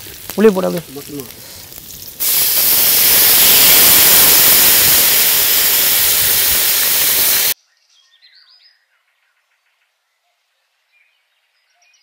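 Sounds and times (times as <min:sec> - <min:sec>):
loud sizzling hiss in a wok: 0:00.0 - 0:07.6
faint bird chirps: 0:07.6 - 0:12.0.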